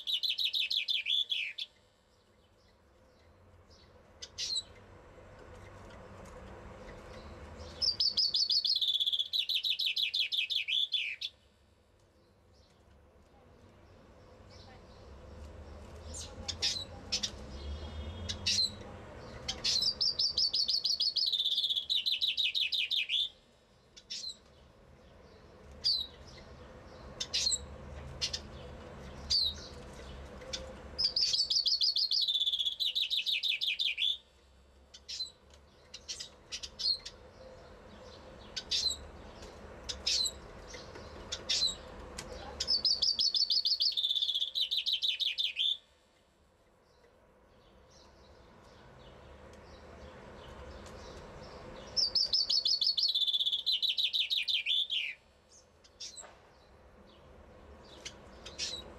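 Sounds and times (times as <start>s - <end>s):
single bird chirps: 51.9s - 55.2s.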